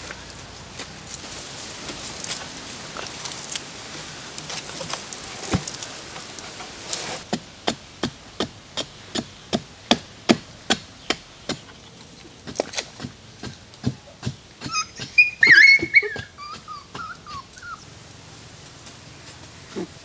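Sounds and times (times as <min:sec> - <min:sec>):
knocks and scrapes: 0:00.0 - 0:07.5
wooden pole striking ground: 0:04.4 - 0:11.7.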